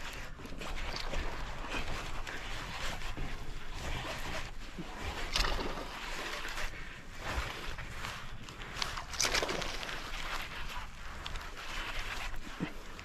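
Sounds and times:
water sloshing against boat hull: 0:00.0 - 0:13.0.

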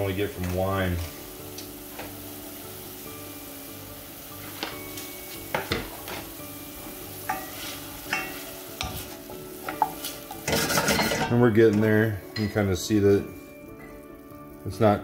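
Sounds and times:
vegetables sizzling: 0:00.0 - 0:15.0
wooden spoon scraping a skillet: 0:04.3 - 0:11.9
spoon knocking against pan: 0:08.1 - 0:09.0.

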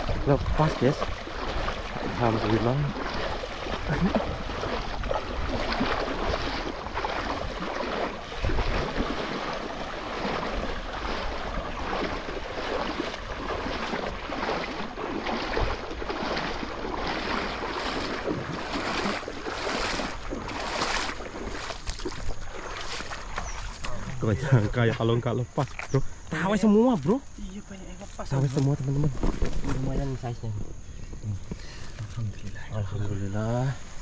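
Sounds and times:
wind on microphone: 0:00.0 - 0:18.6
splashing in shallow water: 0:00.0 - 0:34.0.

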